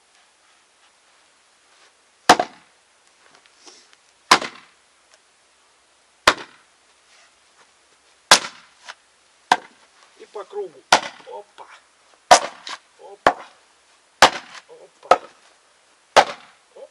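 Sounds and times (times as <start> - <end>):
axe chopping firewood: 2.3 - 2.7, 4.3 - 4.7, 6.2 - 6.6, 8.3 - 9.8, 10.9 - 11.3, 12.3 - 13.6, 14.2 - 15.4, 16.1 - 16.6.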